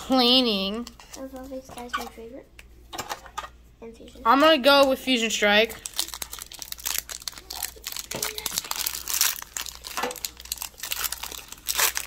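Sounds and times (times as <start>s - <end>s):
foil wrapper crinkling and tearing: 5.6s - 12.0s.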